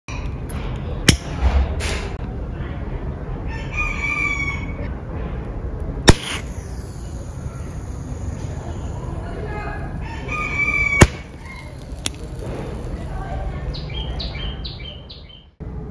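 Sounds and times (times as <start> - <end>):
rooster crowing: 3.5 - 4.8, 10.0 - 11.8
match launcher clicks: 6.1 - 9.9, 11.0 - 13.2.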